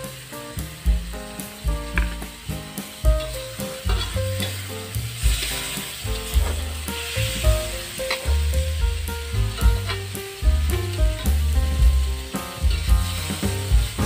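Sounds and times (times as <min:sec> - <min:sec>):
vegetables sizzling in oil: 0:00.0 - 0:14.0
metal spatula scraping wok: 0:03.2 - 0:08.3, 0:09.5 - 0:10.1, 0:12.6 - 0:14.0.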